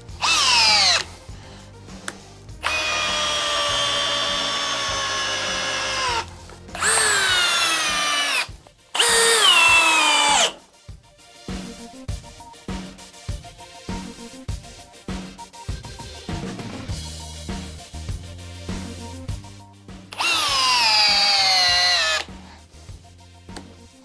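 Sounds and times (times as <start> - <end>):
drill driving screws into wood: 0.1 - 1.1, 2.6 - 10.6, 20.2 - 22.3.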